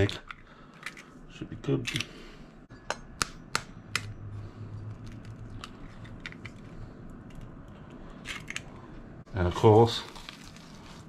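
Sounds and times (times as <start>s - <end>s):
eggshells clicking open: 5.0s - 8.7s.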